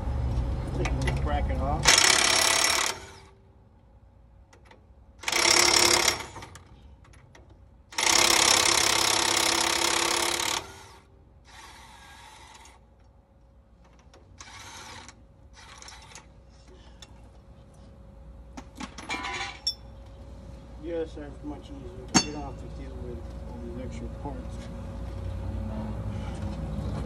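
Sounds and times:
cordless power tool on bolt: 0:01.8 - 0:03.3, 0:05.2 - 0:06.7, 0:08.0 - 0:12.8, 0:14.4 - 0:16.3.

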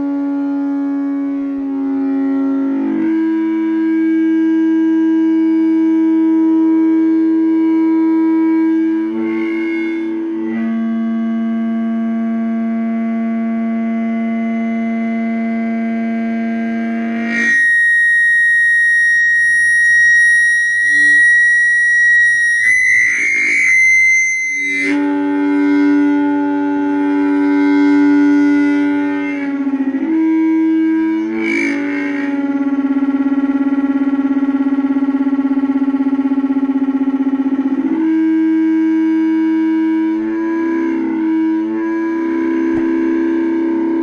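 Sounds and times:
shrill feedback squeal: 0:00.0 - 0:44.0
speaker feedback howl: 0:00.0 - 0:44.0
low hum: 0:24.4 - 0:44.0.

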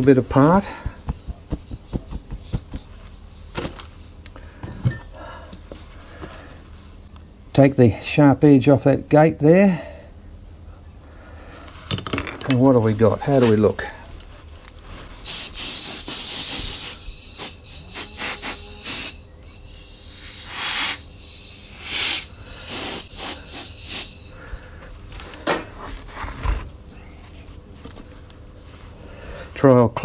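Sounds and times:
compressed air hissing bursts: 0:15.2 - 0:24.8.

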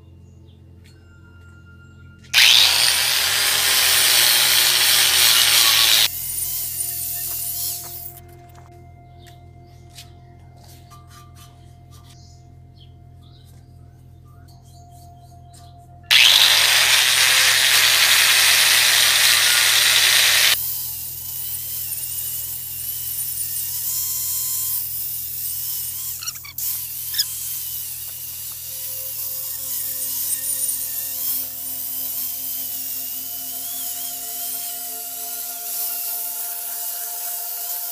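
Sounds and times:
angle grinder grinding paint: 0:02.4 - 0:08.0, 0:16.1 - 0:37.9.

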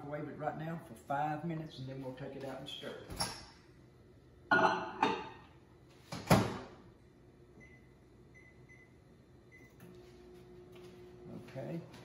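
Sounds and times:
glass bowl clunking: 0:04.5 - 0:05.3.

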